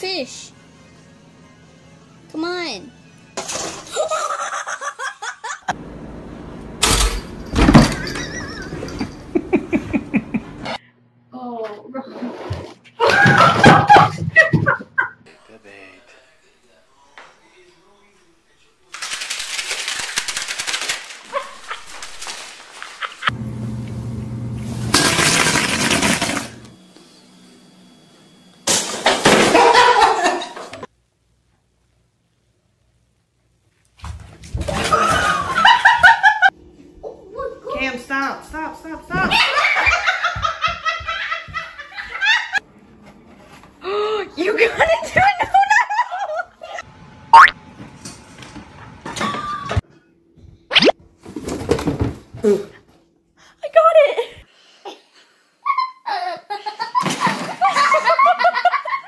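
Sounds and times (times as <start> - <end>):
people laughing: 3.9 - 5.7, 8.0 - 10.8, 22.8 - 23.3, 29.4 - 30.9, 34.8 - 36.5, 39.2 - 42.6, 44.6 - 46.8, 55.6 - 59.0
stool tipping over with clatter: 6.8 - 9.1.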